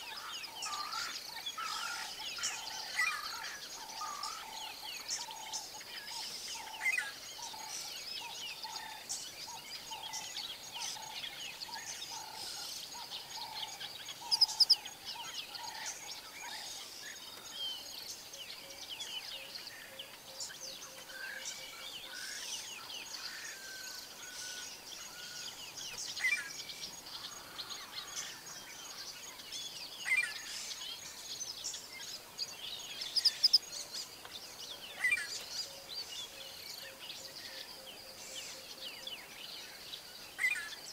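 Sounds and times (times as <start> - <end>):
small birds chirping: 0.0 - 40.9.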